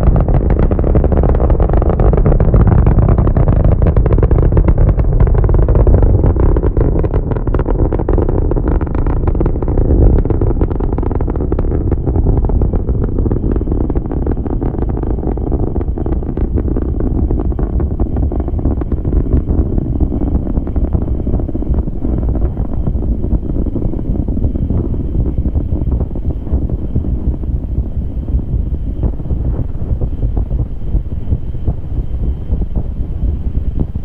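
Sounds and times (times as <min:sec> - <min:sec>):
rocket engines rumbling and crackling: 0:00.0 - 0:34.0.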